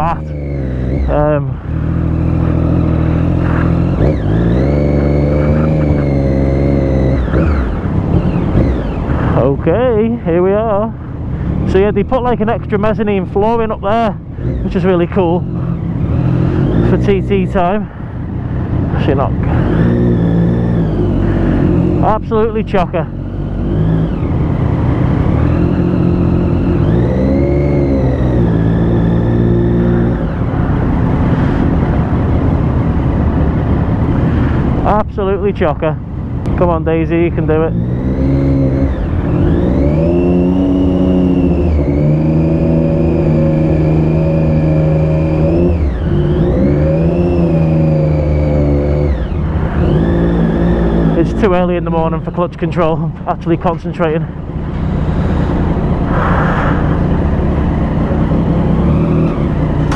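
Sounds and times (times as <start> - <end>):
motorcycle engine pulling: 0.0 - 9.6, 36.6 - 59.9.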